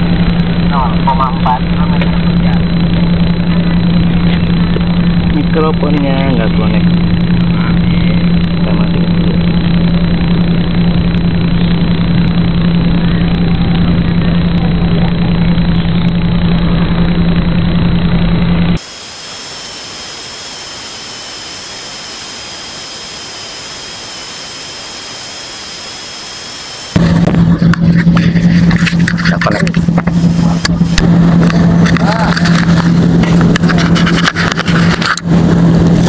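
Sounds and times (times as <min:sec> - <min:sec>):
faint high whines: 0:00.0 - 0:36.0
low electrical buzz: 0:00.0 - 0:36.0
steady hiss: 0:18.8 - 0:27.0.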